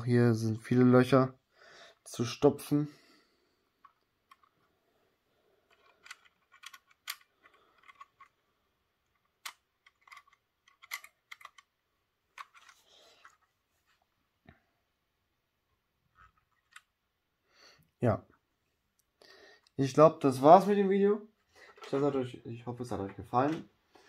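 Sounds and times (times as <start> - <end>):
plastic model coach clicking: 3.8 - 4.6, 5.7 - 8.4, 9.0 - 11.7.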